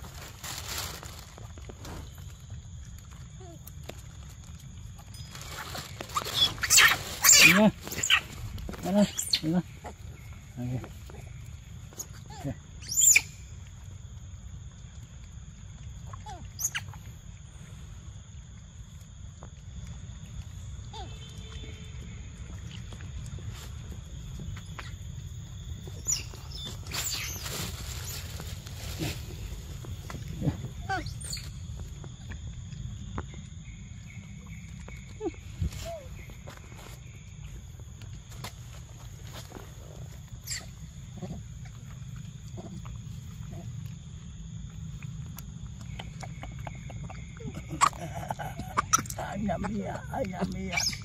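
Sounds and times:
rustling in dry leaves: 0.0s - 12.2s, 25.8s - 32.0s, 34.7s - 41.0s
monkey chewing and smacking: 40.4s - 51.0s.

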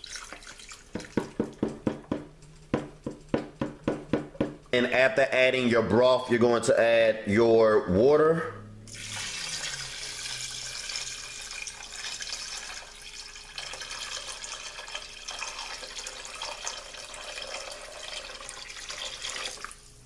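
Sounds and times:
water pouring into broth: 0.0s - 1.6s, 8.9s - 20.0s.

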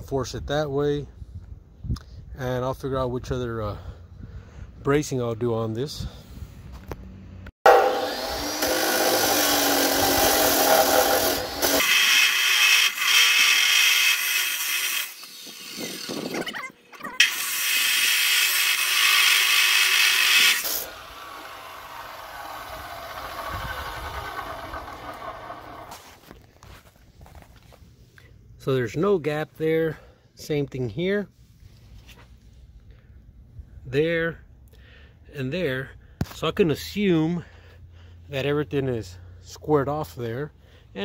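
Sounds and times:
chop saw grinding steel: 7.7s - 16.4s, 17.2s - 26.2s.

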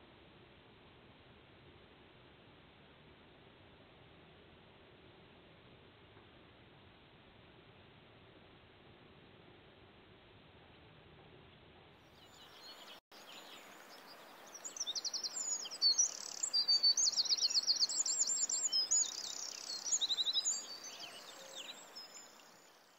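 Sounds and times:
faint outdoor hiss: 0.0s - 22.9s
songbirds trilling and chirping: 12.0s - 22.9s.

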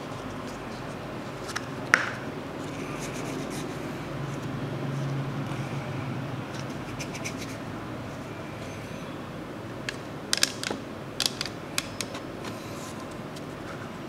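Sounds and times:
steady background hiss: 0.0s - 14.0s
plastic toy clicks and rattles: 10.4s - 12.2s.

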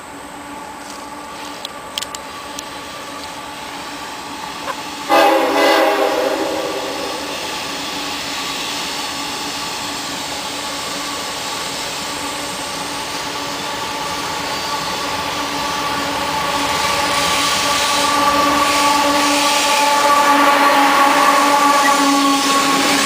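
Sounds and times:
diesel locomotive engines whining: 0.0s - 23.0s
train wheel and rail noise: 0.0s - 23.0s.

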